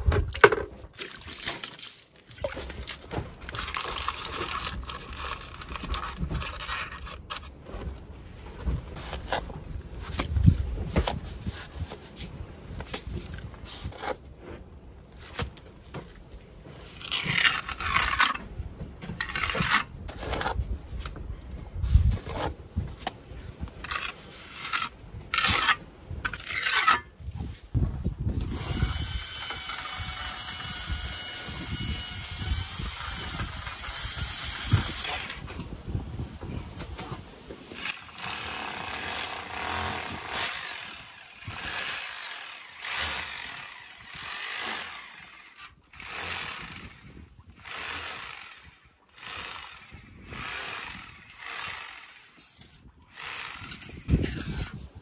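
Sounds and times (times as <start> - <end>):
hand tool scraping mortar on stone: 3.5 - 7.6, 16.8 - 18.5, 19.1 - 21.2, 21.8 - 23.0, 23.6 - 27.4, 37.0 - 48.5, 49.2 - 54.9
power tool running against wall: 37.7 - 52.4, 53.1 - 54.8.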